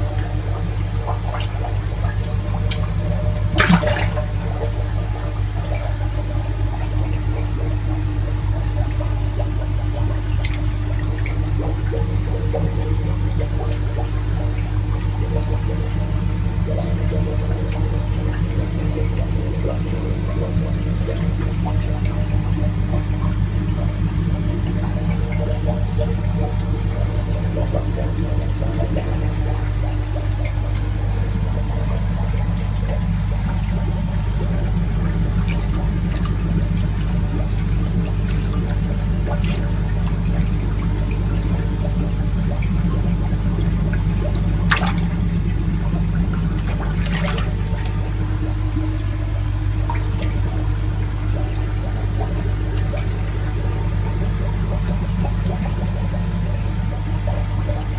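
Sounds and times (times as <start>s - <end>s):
steady low hum: 0.0s - 57.9s
water bubbling and gurgling: 0.0s - 57.9s.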